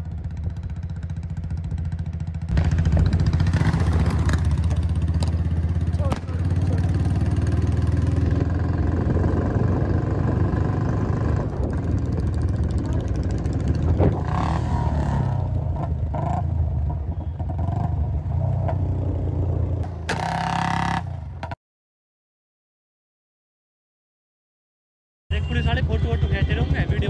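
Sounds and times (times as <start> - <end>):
motorcycle engine running: 0.0 - 21.6.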